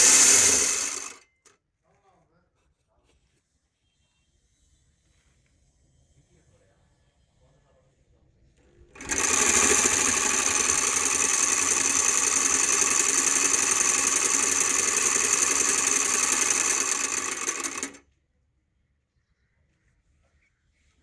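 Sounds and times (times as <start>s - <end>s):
drilling machine whirring: 0.0s - 1.2s, 9.0s - 18.0s.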